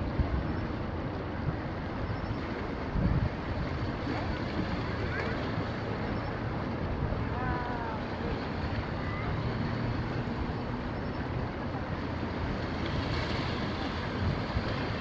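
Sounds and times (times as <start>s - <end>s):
outdoor background rush: 0.0s - 15.0s
faint voices: 4.0s - 6.4s, 7.0s - 12.7s.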